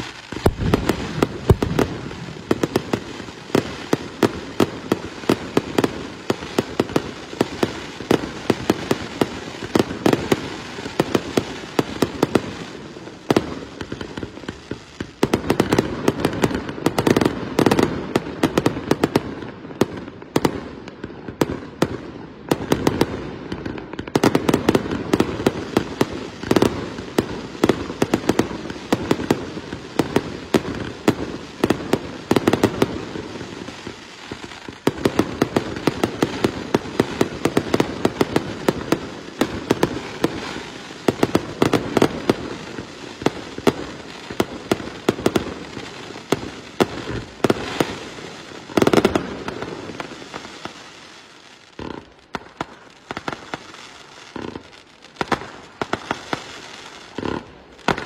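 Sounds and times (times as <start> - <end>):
fireworks bursting and crackling: 0.0 - 58.0.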